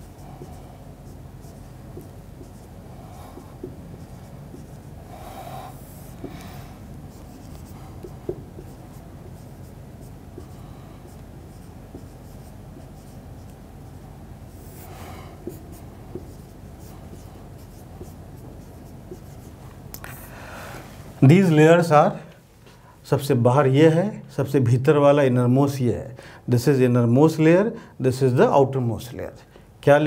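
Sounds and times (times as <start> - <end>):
marker writing on whiteboard: 0.0 - 20.2.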